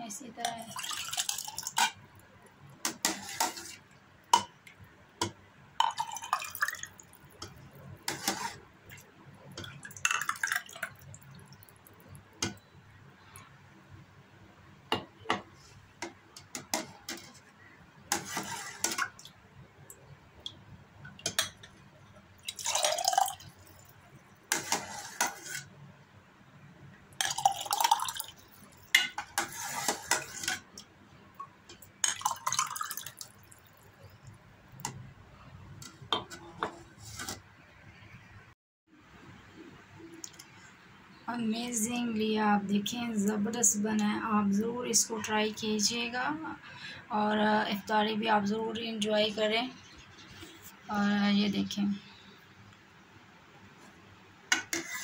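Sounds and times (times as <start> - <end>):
thick liquid pouring into glass: 5.8 - 7.3, 22.4 - 23.9, 27.2 - 28.8, 32.0 - 34.0.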